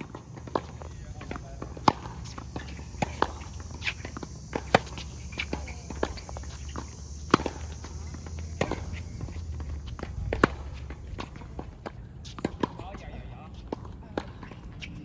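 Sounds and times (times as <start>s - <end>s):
racquet hitting tennis ball: 0.0s - 13.0s
distant tennis return hits: 0.0s - 15.0s
footsteps: 0.0s - 15.0s
tennis ball bouncing: 0.0s - 15.0s.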